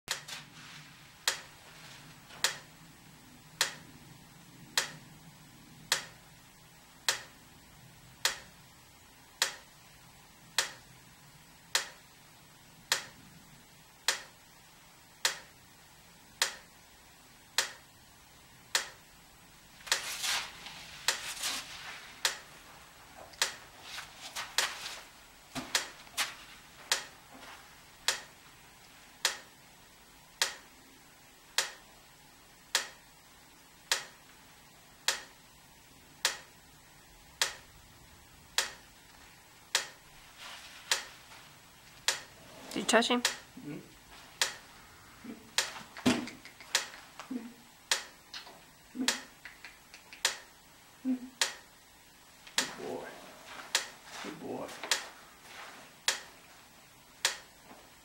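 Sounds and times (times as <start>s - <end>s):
rustling and scuffing: 0.3s - 2.4s, 19.8s - 27.8s, 40.2s - 41.6s, 53.0s - 56.6s
sharp repeating tick: 1.2s - 1.5s, 2.4s - 2.7s, 3.6s - 3.9s, 4.7s - 5.0s, 5.9s - 6.2s, 7.0s - 7.4s, 8.2s - 8.5s, 9.4s - 9.7s, 10.5s - 10.8s, 11.7s - 12.0s, 12.9s - 13.2s, 14.0s - 14.4s, 15.2s - 15.6s, 16.4s - 16.7s, 17.6s - 17.9s, 18.7s - 19.0s, 22.2s - 22.5s, 23.3s - 23.6s, 26.8s - 27.1s, 28.0s - 28.3s, 29.2s - 29.5s, 30.4s - 30.7s, 31.6s - 31.8s, 32.7s - 33.0s, 33.8s - 34.3s, 35.0s - 35.4s, 36.2s - 36.5s, 37.4s - 37.7s, 38.5s - 38.9s, 39.7s - 40.0s, 40.9s - 41.1s, 41.9s - 42.3s, 43.2s - 43.5s, 44.4s - 44.7s, 45.6s - 47.0s, 47.9s - 48.5s, 49.1s - 50.6s, 51.4s - 51.7s, 53.7s - 53.9s, 56.0s - 56.3s, 57.2s - 57.5s.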